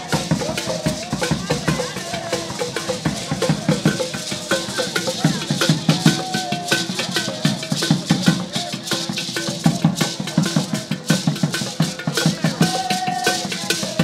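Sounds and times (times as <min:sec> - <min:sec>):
drum ensemble with rattles: 0:00.0 - 0:14.0
voices: 0:00.0 - 0:14.0.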